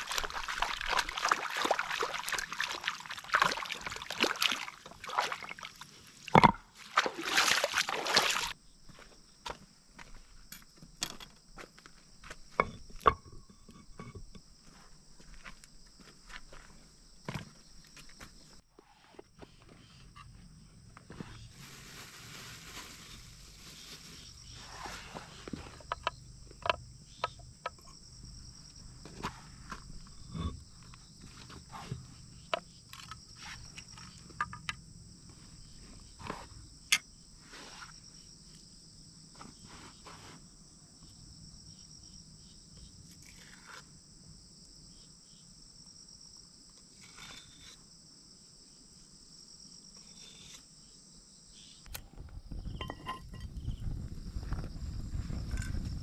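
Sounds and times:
crickets chirping: 0:00.0 - 0:56.0
objects set down on stone: 0:06.3 - 0:08.6, 0:09.5 - 0:18.3, 0:52.5 - 0:53.8.

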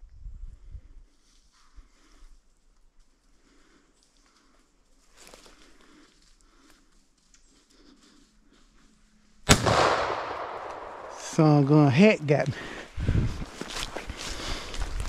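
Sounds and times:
footsteps rustling through dry leaves: 0:12.7 - 0:15.0.

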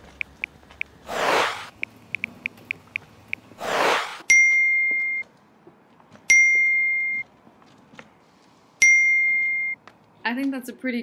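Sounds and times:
whoosh: 0:01.1 - 0:01.8, 0:03.6 - 0:04.3.

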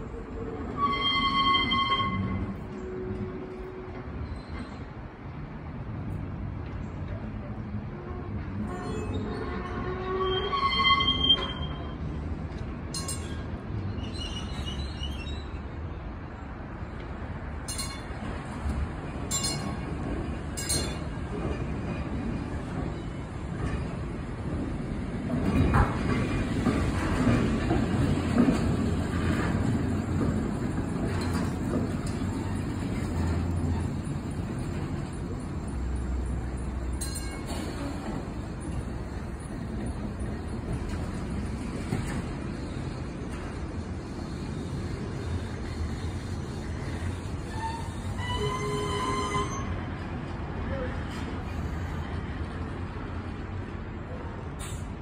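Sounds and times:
streetcar rumbling on rails: 0:00.0 - 0:55.0
high wheel squeal: 0:00.6 - 0:03.2, 0:08.7 - 0:12.0, 0:13.0 - 0:15.7, 0:44.5 - 0:49.8.

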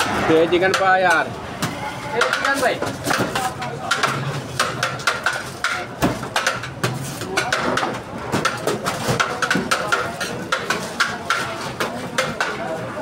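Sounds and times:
murmur of voices: 0:00.0 - 0:13.0.

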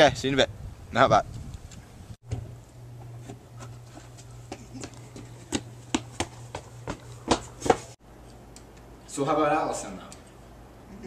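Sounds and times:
low steady hum: 0:01.9 - 0:11.0
footsteps running on hard ground: 0:04.0 - 0:08.0.

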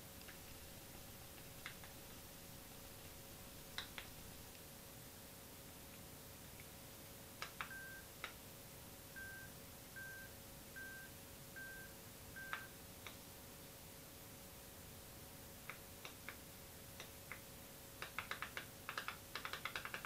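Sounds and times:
faint headphone beeps: 0:07.7 - 0:08.1, 0:09.2 - 0:12.8.

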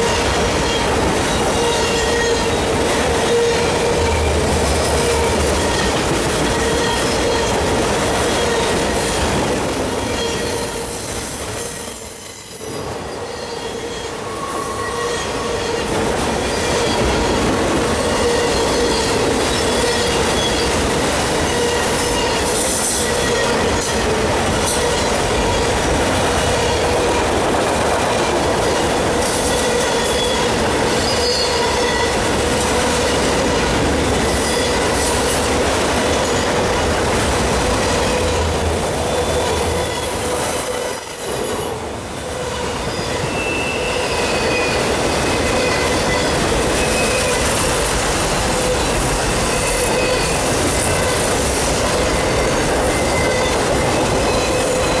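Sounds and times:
high-pitched wheel squeals: 0:00.0 - 0:17.4, 0:18.0 - 0:26.4, 0:29.4 - 0:32.2, 0:37.8 - 0:41.8, 0:42.4 - 0:47.5, 0:52.1 - 0:55.0
train wheels rumbling on rails: 0:00.0 - 0:55.0.

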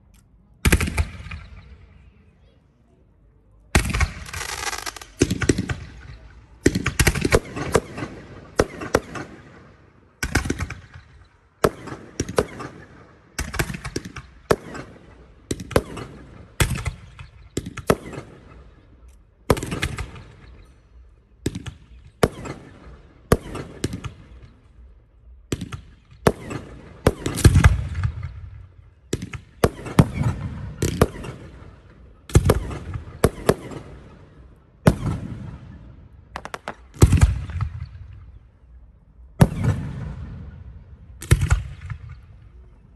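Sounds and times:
firework shells bursting: 0:36.4 - 0:37.6.

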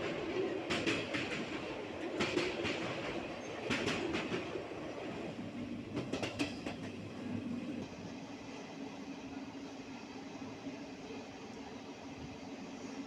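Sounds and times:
wheels clicking over rail joints: 0:00.0 - 0:07.1
train rumbling on track: 0:00.0 - 0:13.0.

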